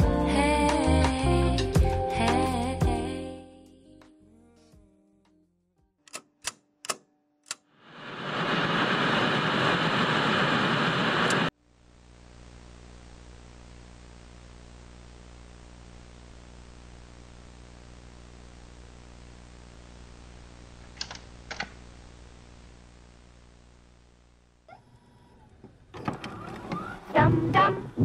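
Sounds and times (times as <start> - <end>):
sharp clicks: 20.9 - 21.8.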